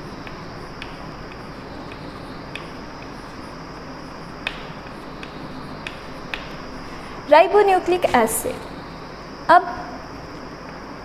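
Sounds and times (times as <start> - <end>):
steady hiss: 0.0 - 11.0
chalk tapping and scraping on board: 0.2 - 3.4, 4.4 - 6.6.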